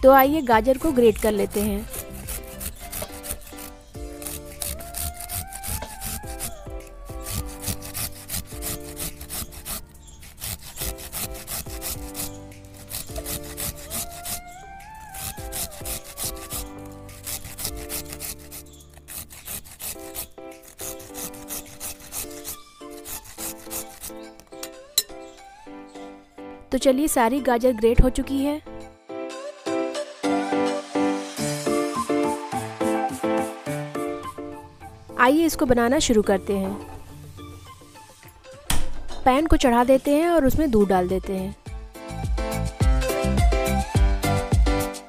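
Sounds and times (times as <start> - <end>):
background music: 0.0 - 45.0
carrot rasping on a grater: 0.8 - 24.7.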